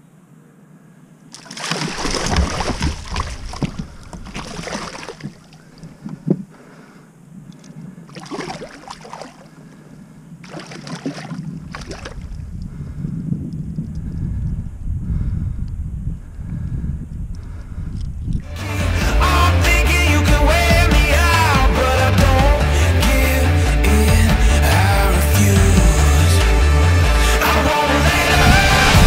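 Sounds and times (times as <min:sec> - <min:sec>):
fish thrashing and splashing water: 0:01.3 - 0:06.3, 0:08.1 - 0:09.6, 0:10.4 - 0:12.5.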